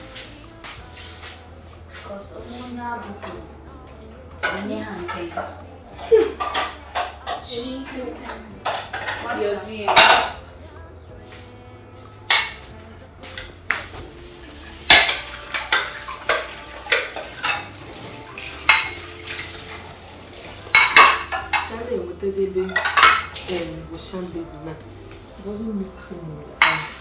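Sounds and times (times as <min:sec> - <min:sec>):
metal utensils clinking on pots: 0:04.4 - 0:10.4, 0:12.3 - 0:12.7, 0:14.6 - 0:24.2, 0:26.5 - 0:27.0.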